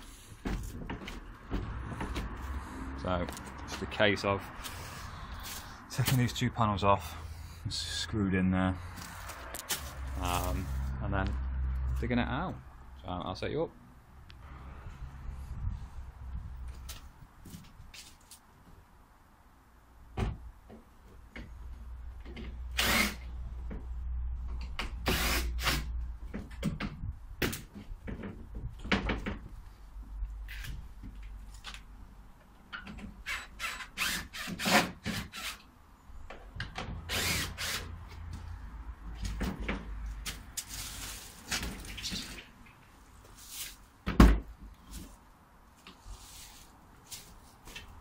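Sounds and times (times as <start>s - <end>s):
cordless drill short bursts: 22.7s - 23.2s, 25.0s - 25.9s, 33.2s - 35.6s, 37.1s - 37.9s.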